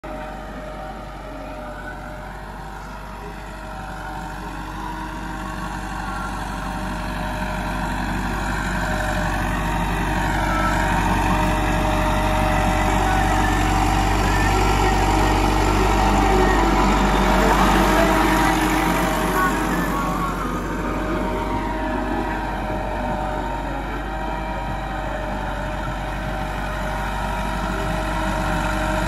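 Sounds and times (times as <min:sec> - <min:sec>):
tractor diesel engine running: 0:00.0 - 0:29.0.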